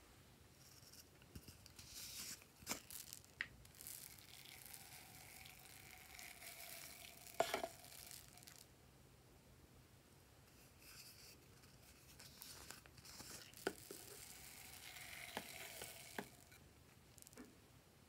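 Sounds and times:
foam beads pouring: 1.7s - 8.7s, 11.9s - 17.4s.

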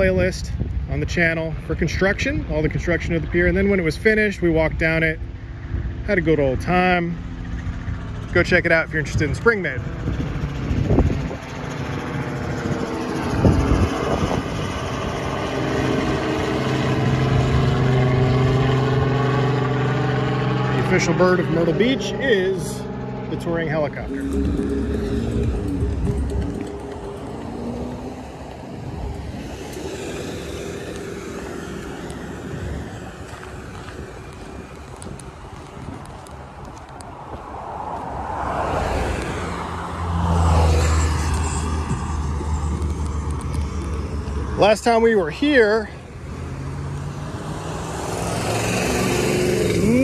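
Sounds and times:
road traffic noise: 0.0s - 50.0s
helicopter rotor drone: 2.0s - 36.8s, 40.8s - 46.4s
minivan driving past: 9.6s - 36.6s, 37.2s - 50.0s
low thumps: 23.9s - 29.4s.

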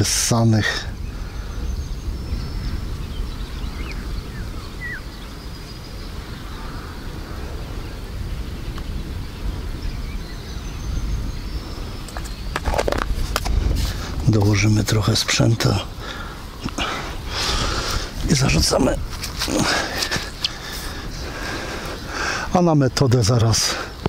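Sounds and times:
wind buffeting microphone: 0.0s - 24.0s
faint bird chirps: 0.7s - 12.9s.

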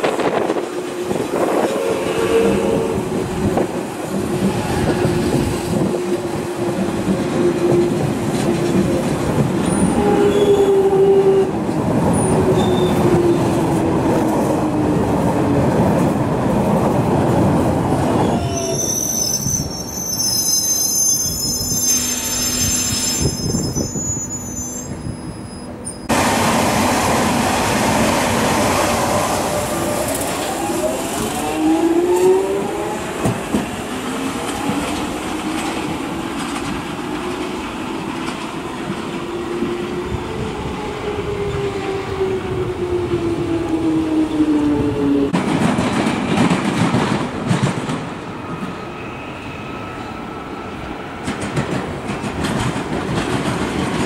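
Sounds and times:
train wheels rumbling on track: 0.0s - 54.0s
high wheel squeal: 18.2s - 26.1s.

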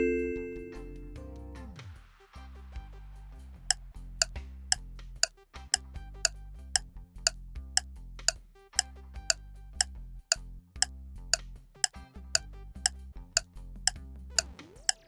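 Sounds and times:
low music bed: 0.0s - 1.4s.

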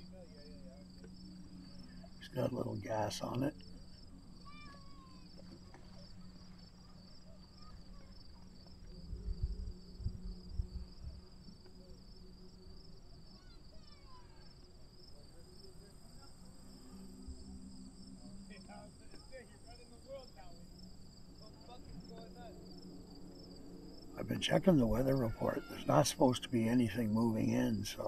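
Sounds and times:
crickets chirping: 0.0s - 28.0s
low steady hum: 0.0s - 28.0s
wind buffeting microphone: 9.0s - 11.3s.

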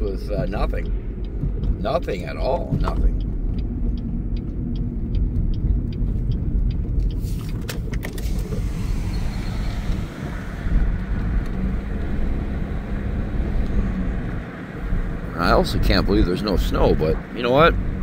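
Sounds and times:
light regular ticking: 0.0s - 8.6s
car engine and tyre rumble: 0.0s - 18.0s.

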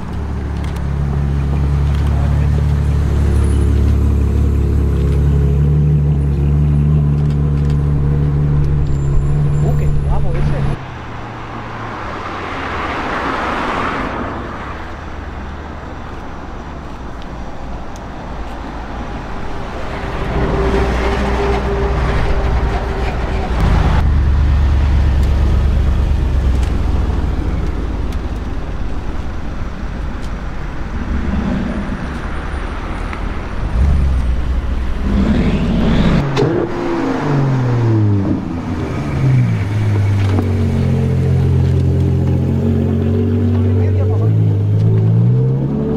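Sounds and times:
vehicles driving past: 0.0s - 45.9s
car engine revving: 23.5s - 45.9s.

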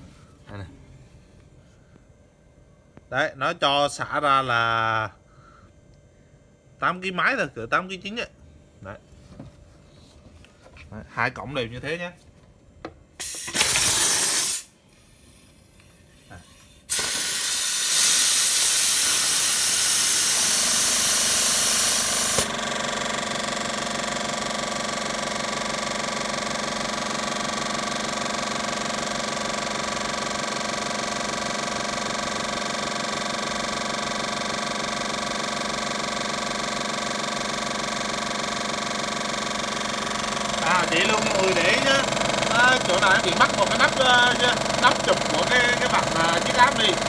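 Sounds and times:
compressed air hissing: 13.2s - 22.5s
compressor motor pulsing: 13.2s - 47.0s.

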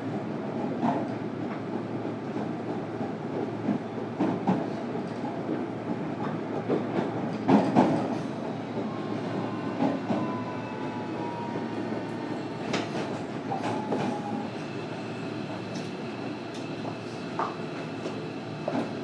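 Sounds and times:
train wheels rumbling on rail: 0.0s - 19.0s
rail joints clacking: 5.9s - 8.2s.

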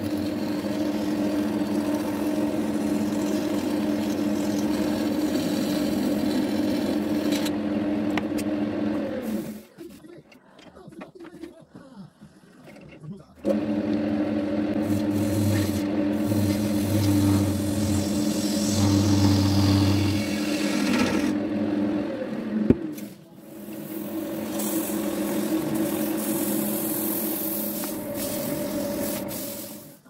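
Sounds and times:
lathe motor hum: 0.0s - 9.5s, 13.4s - 22.9s, 23.5s - 30.0s
hissing scrape on wood: 23.0s - 30.0s.

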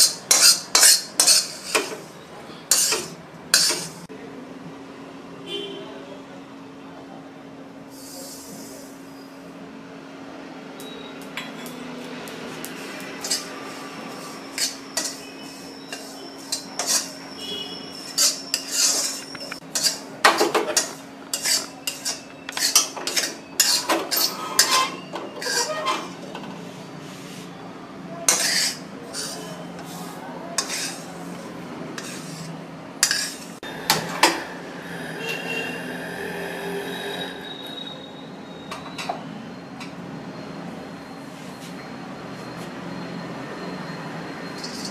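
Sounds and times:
steel spatula scraping iron pan: 0.0s - 2.1s, 2.7s - 4.0s, 13.2s - 26.2s, 28.3s - 31.1s, 32.0s - 33.6s, 44.6s - 44.9s.

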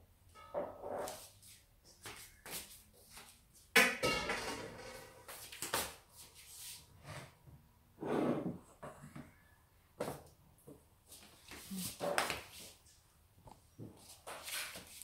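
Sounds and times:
loud metallic clank: 4.0s - 5.1s.

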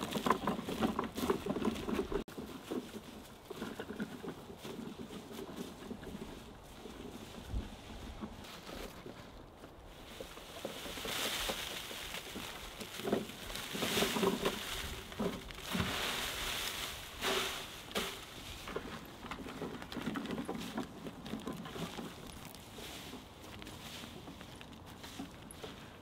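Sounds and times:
bark peelings rustling: 8.1s - 26.0s.

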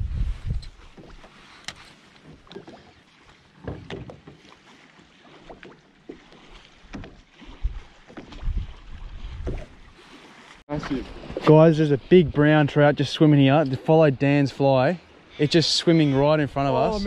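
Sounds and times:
waves lapping against boat hull: 0.1s - 17.0s
light knocks and splashes: 0.6s - 11.6s.

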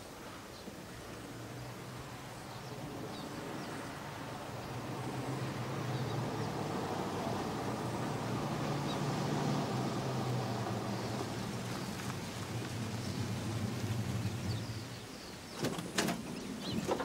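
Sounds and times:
vehicle engine approaching: 1.3s - 15.5s.

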